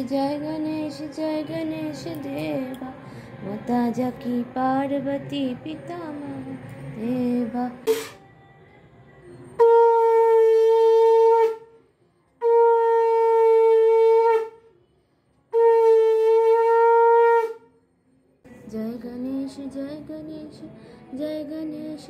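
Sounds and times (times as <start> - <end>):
conch shell blasts: 15.6 - 17.6.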